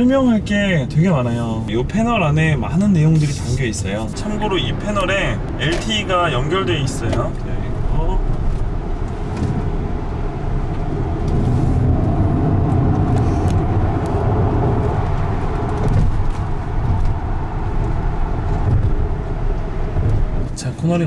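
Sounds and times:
road and tyre noise in car: 0:00.0 - 0:21.0.

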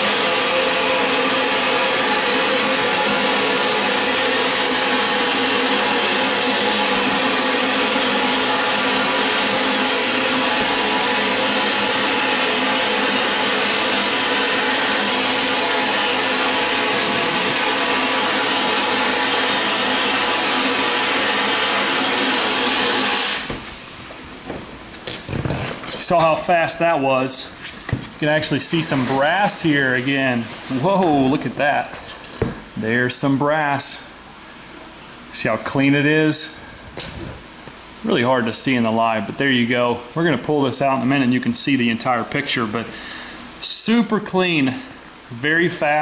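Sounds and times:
vapor blasting nozzle hissing: 0:00.0 - 0:24.9.

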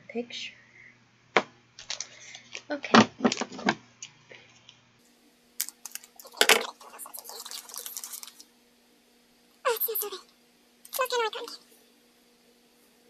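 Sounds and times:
plastic packet crinkling: 0:01.8 - 0:02.6, 0:05.6 - 0:08.5.

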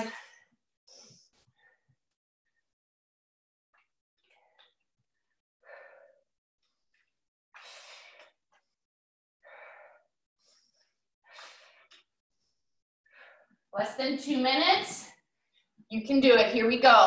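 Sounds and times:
person breathing hard: 0:05.6 - 0:06.3, 0:09.4 - 0:12.4.

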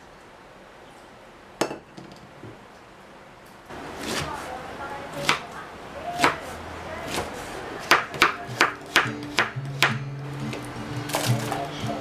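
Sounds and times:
knife chopping on wooden board: 0:07.0 - 0:10.0
soft background music: 0:08.3 - 0:12.0.

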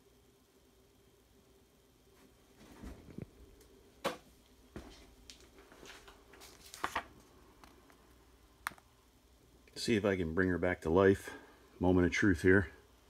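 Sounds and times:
paper rustling: 0:05.6 - 0:07.2.

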